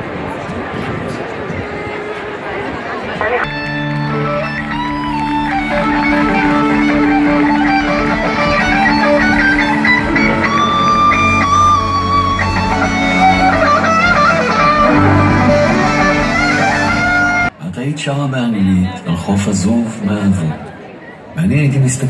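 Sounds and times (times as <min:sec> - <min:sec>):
guitars strummed and plucked: 0:03.4 - 0:17.5
live band playing instrumental: 0:03.4 - 0:17.5.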